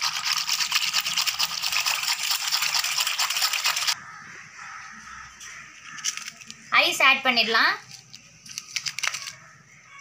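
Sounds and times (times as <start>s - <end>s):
stirring in a metal bowl: 0.0s - 4.0s.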